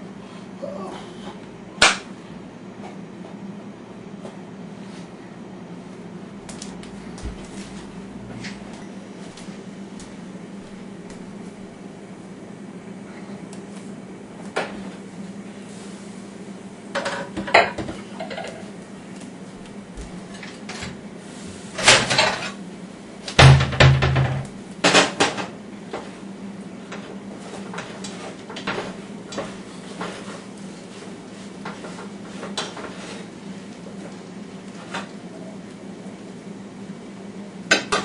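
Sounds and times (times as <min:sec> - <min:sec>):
steady low hum: 0:00.0 - 0:38.0
pots and dishes clattering: 0:17.0 - 0:18.7.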